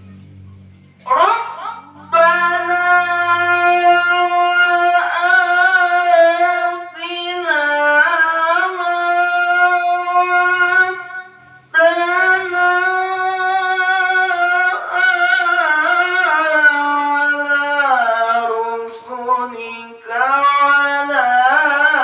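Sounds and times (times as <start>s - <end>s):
person reciting melodically: 0.0s - 22.0s.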